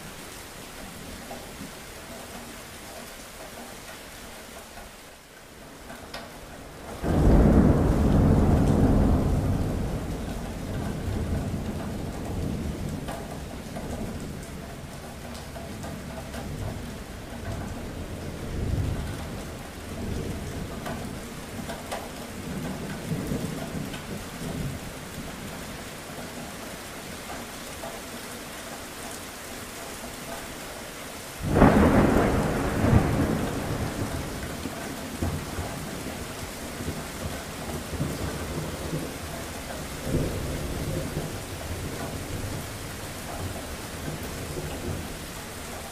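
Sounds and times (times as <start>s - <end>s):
steady rain: 0.0s - 45.9s
thunder rumbling: 6.8s - 15.6s, 16.2s - 25.4s, 31.4s - 45.9s
loud thunderclap: 7.0s - 13.1s, 31.4s - 39.1s.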